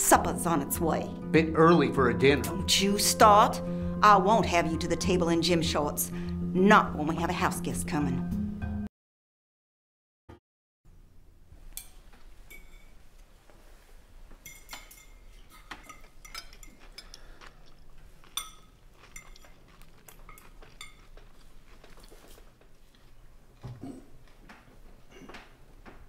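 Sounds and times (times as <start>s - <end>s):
cutlery clinking on plates: 11.7s - 13.0s, 14.4s - 21.4s.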